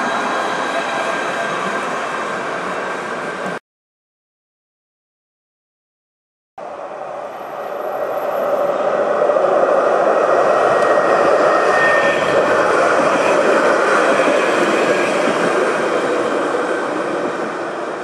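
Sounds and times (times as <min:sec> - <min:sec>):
tram wheels rolling on rails: 0:06.7 - 0:18.0.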